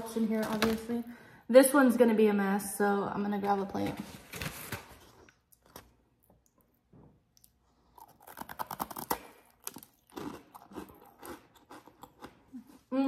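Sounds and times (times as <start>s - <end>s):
lollipop crunching: 5.2s - 12.8s.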